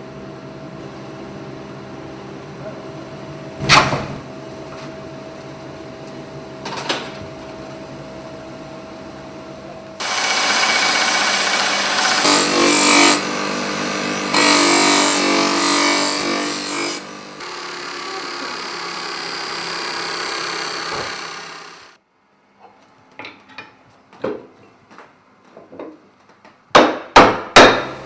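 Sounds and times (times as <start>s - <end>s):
bench grinder hum: 10.0s - 22.0s
steel hissing on grinding wheel: 10.0s - 22.0s.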